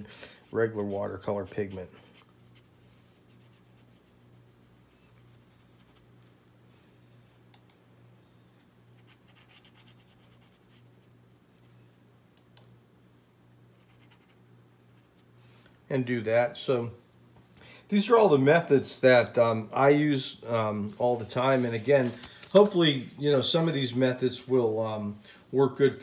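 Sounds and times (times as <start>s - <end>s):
brush stroking paper: 0.4s - 6.3s, 9.0s - 11.1s, 21.0s - 22.8s.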